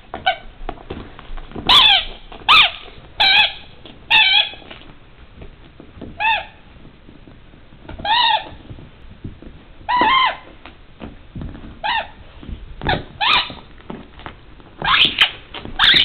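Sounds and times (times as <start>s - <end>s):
dog chewing and shaking toy: 0.1s - 16.0s
squeaky dog toy squeaking: 1.7s - 4.7s, 6.2s - 6.6s, 8.0s - 8.6s, 9.9s - 10.5s, 12.8s - 13.6s, 14.8s - 16.0s.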